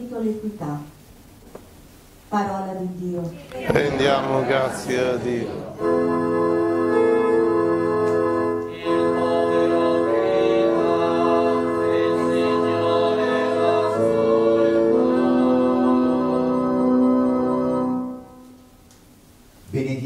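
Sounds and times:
organ playing slow chords: 3.7 - 19.4.

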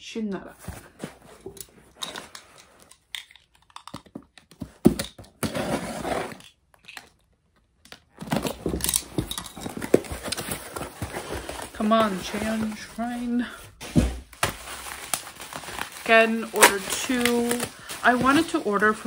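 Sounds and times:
plastic wrap crinkling: 8.1 - 19.0.

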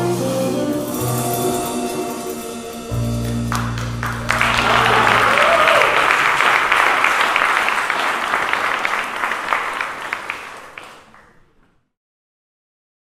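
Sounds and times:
audience applauding: 3.2 - 11.7.

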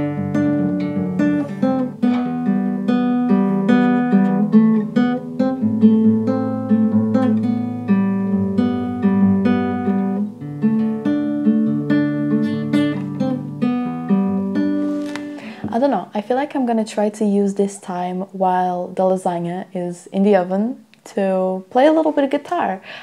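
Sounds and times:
acoustic guitar chords: 0.0 - 16.2.

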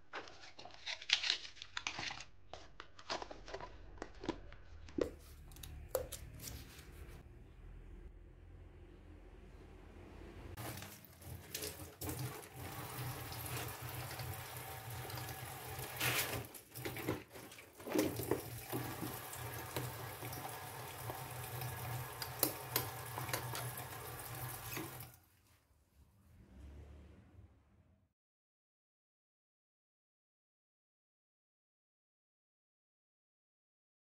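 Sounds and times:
tap water running into sink: 10.6 - 25.2.

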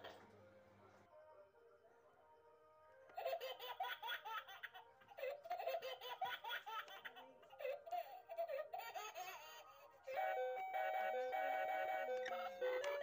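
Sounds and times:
music: 0.0 - 6.1, 10.0 - 13.0.

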